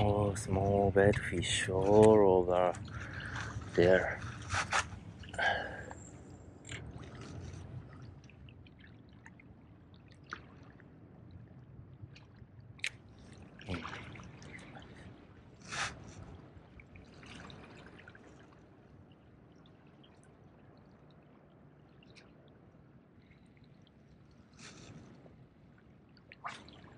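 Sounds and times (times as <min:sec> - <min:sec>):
small waves lapping on rocks: 0:00.0 - 0:08.2.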